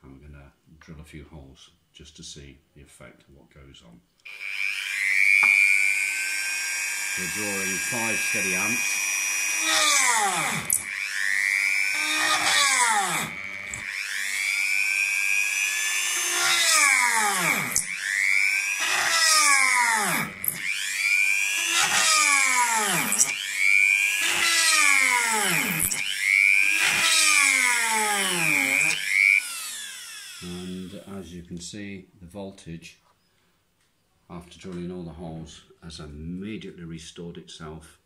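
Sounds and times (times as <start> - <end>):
rotary tool drilling wood: 4.2 - 31.3.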